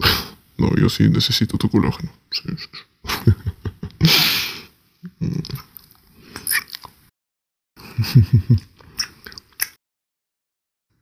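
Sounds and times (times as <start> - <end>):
man breathy huff: 4.0 - 4.8
man making non-word sounds: 5.0 - 5.8.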